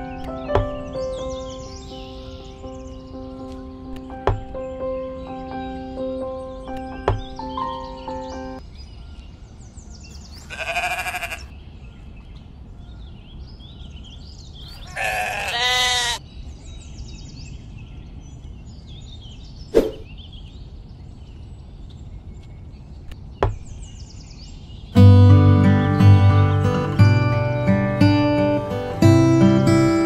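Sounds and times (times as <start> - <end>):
sharp knocks: 0.5 - 0.9, 4.2 - 4.6, 6.8 - 7.4
sheep bleating: 10.4 - 11.5, 14.8 - 16.2.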